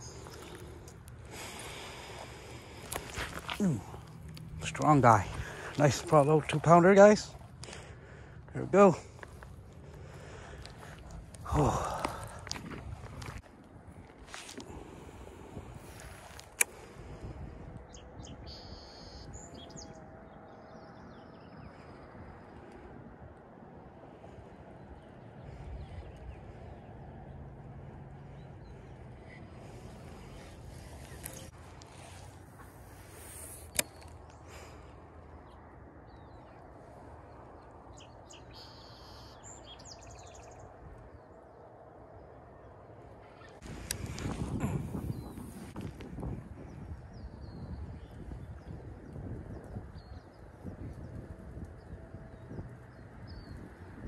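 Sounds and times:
birds chirping: 0.0 - 13.4, 17.8 - 54.0
wind rumble on microphone: 9.1 - 34.8, 39.6 - 54.0
bird trill: 18.4 - 20.0, 38.0 - 40.5.

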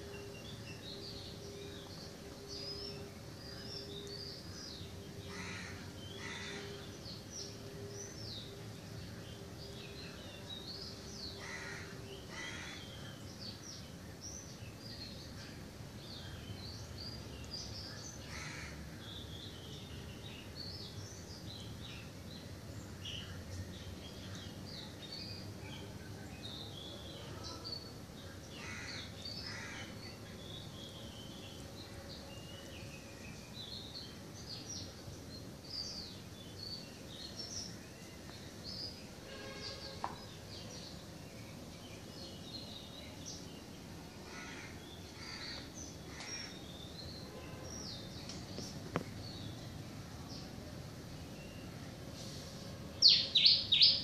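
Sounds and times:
harsh bird calls: 0.0 - 8.2, 11.1 - 13.6, 26.9 - 49.2
birds chirping and twittering: 0.0 - 54.0.

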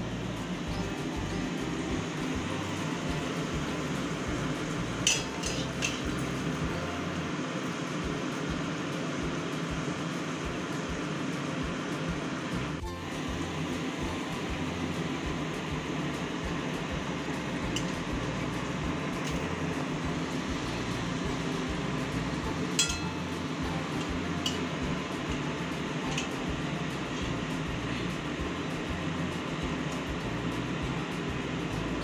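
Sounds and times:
deep-frying sizzle in oil: 0.0 - 32.0
metal utensil clinking on pan: 5.0 - 6.2, 22.8 - 23.3, 24.0 - 24.8.

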